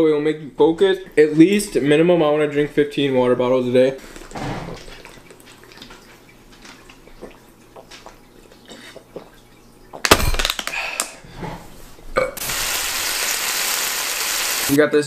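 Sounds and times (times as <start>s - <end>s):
loud burst of noise: 12.4s - 14.7s.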